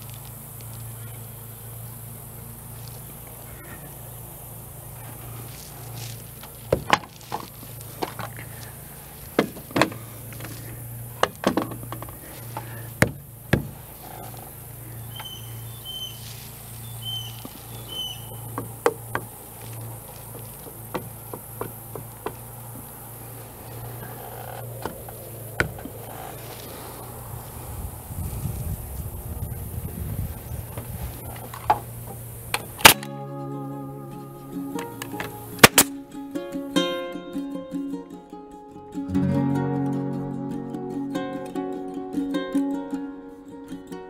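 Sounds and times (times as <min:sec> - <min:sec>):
steady low hum: 0:00.0 - 0:38.1
wooden brace knocking into timber: 0:06.7 - 0:08.3, 0:09.4 - 0:10.6, 0:11.2 - 0:13.8, 0:18.5 - 0:19.4, 0:20.3 - 0:22.9.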